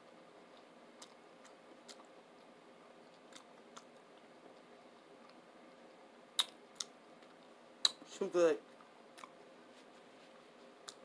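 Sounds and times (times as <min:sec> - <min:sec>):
faint chewing: 0:00.5 - 0:08.0, 0:10.2 - 0:11.0
mouth clicks: 0:06.4 - 0:07.0.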